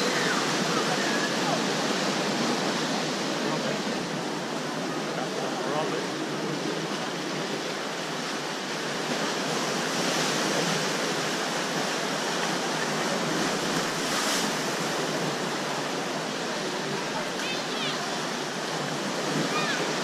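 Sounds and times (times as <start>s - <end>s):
sea waves splashing on rocks: 6.9s - 20.0s.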